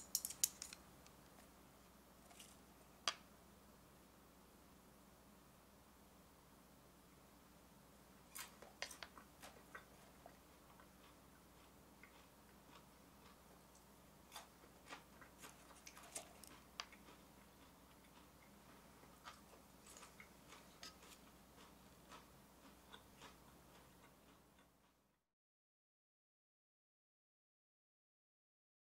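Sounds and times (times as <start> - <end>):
chopsticks tapping plastic cup: 0.0 - 0.8.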